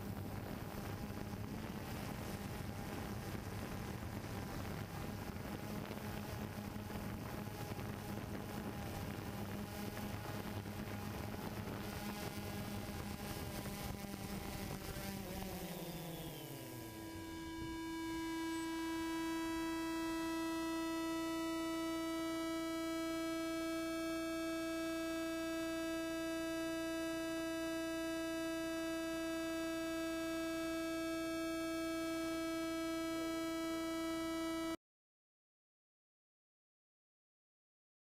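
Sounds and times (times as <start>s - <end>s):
steady electrical hum: 0.0s - 34.8s
drone motors spinning down: 11.6s - 23.9s.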